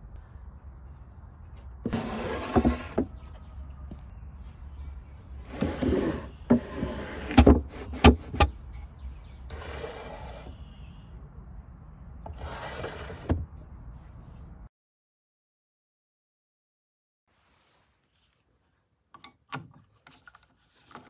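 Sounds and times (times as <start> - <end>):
wooden drawers sliding: 1.9 - 3.2, 5.4 - 8.5, 9.5 - 10.5, 12.3 - 13.5.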